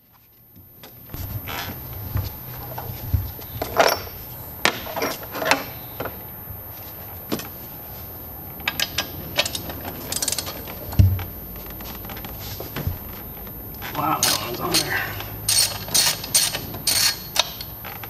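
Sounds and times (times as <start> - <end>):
faint low hum: 0.0 - 18.0
hand ratchet clicking: 8.7 - 10.6, 15.5 - 18.0.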